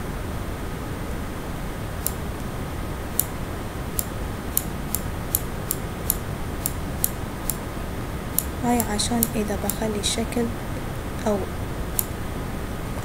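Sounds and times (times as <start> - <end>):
steady low hum: 0.0 - 13.0
mouse button clicks: 4.0 - 7.6.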